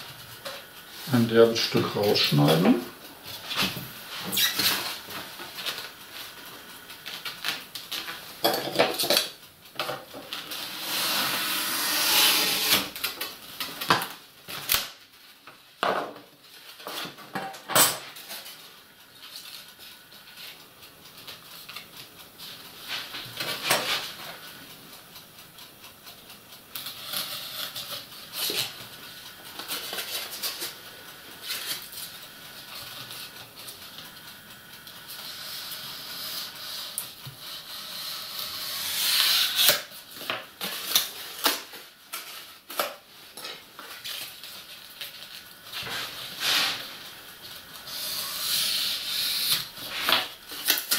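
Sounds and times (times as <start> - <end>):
knife cutting foam: 38.7 - 39.8
foam pieces rubbed and handled: 43.2 - 50.7.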